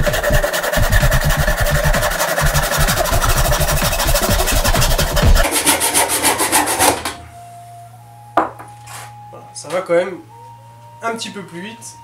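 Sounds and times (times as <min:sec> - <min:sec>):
backsaw cutting wood: 0:00.0 - 0:07.2
background music: 0:00.0 - 0:12.0.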